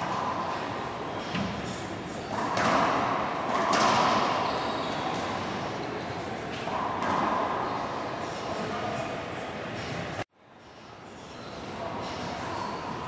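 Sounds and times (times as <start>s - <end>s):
racquetball hits echoing: 1.2s - 5.6s, 6.5s - 7.6s.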